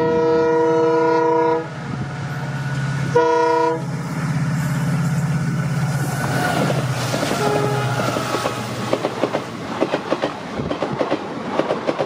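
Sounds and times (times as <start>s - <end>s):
locomotive air horn blast: 0.0s - 1.8s, 3.1s - 4.0s, 6.1s - 8.7s
locomotive engine rumble: 0.0s - 11.4s.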